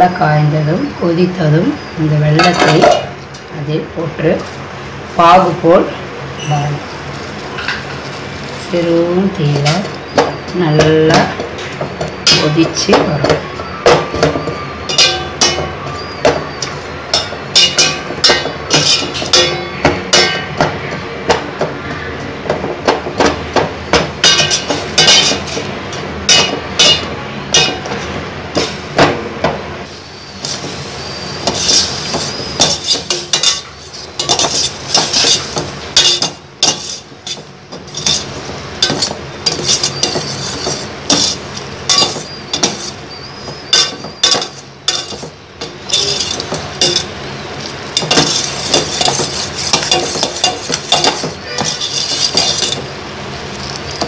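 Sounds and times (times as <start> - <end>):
metal ladle scraping steel pot: 14.9 - 20.6, 24.2 - 25.7, 26.3 - 28.1, 30.4 - 45.3, 45.9 - 52.9.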